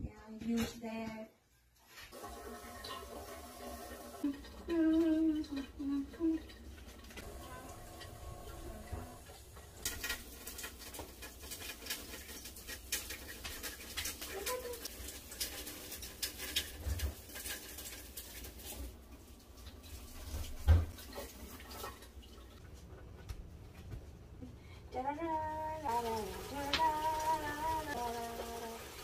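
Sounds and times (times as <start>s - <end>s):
dishes clinking in sink: 2.1s - 18.8s, 19.8s - 22.2s.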